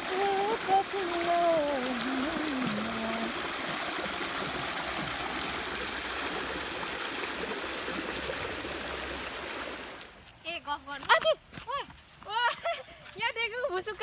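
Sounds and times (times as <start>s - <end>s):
stream rushing over rocks: 0.0s - 10.2s.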